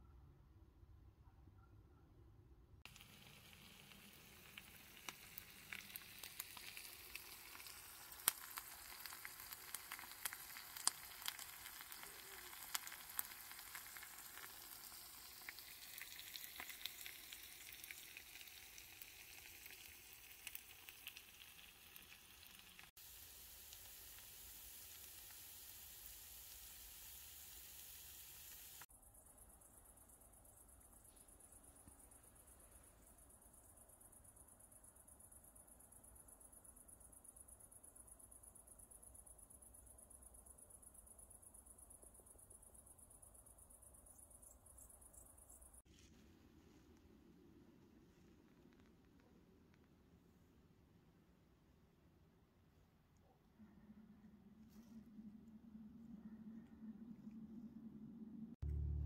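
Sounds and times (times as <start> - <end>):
food sizzling in a pan: 2.9 - 28.9
oil popping and crackling: 2.9 - 28.9.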